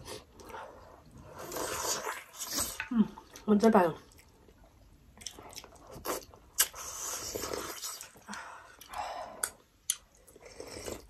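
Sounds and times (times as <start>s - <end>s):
dumplings being chewed: 4.1s - 11.0s.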